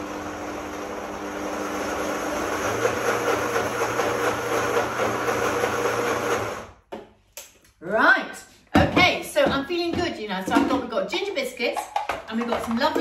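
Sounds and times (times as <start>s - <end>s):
electric blender running: 0.0s - 6.8s.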